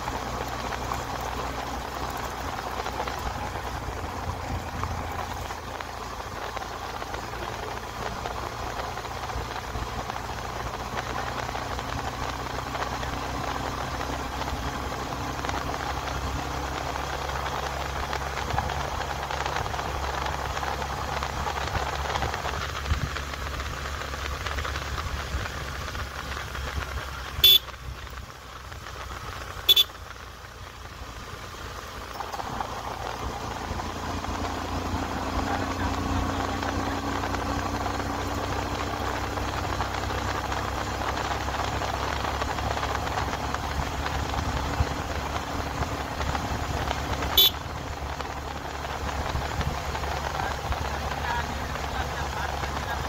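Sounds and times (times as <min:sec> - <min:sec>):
motorcycle engine running: 0:00.0 - 0:53.0
motorcycle horn toots: 0:27.4 - 0:27.7, 0:29.7 - 0:30.0, 0:47.3 - 0:47.6.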